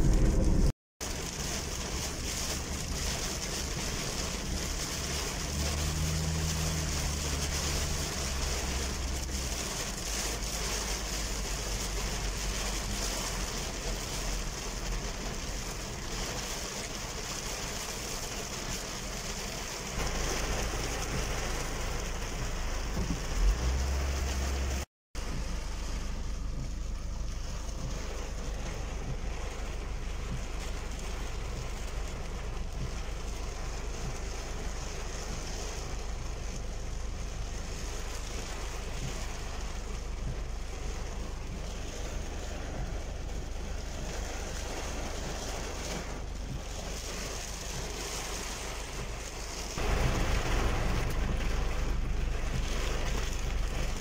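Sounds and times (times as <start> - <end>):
engine and tyres on wet road: 0.0 - 54.0
heavy rain on car windscreen: 0.0 - 54.0.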